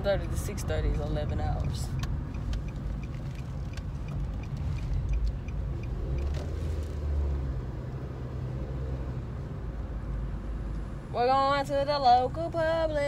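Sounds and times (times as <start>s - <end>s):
car engine rumble and road noise: 0.0s - 13.0s
light regular ticking: 0.9s - 6.7s.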